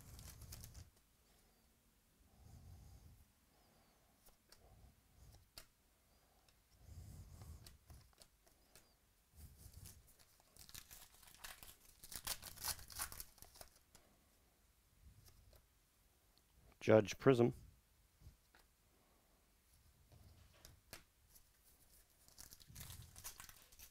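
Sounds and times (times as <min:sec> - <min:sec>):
foil wrapper crinkling and tearing: 0:00.0 - 0:00.9, 0:09.8 - 0:13.9, 0:21.9 - 0:23.9.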